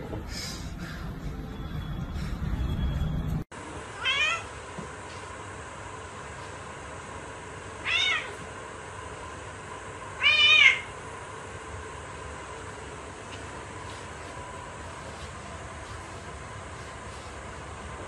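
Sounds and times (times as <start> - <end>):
cat meowing: 4.0 - 4.5, 7.8 - 8.4, 10.2 - 10.9.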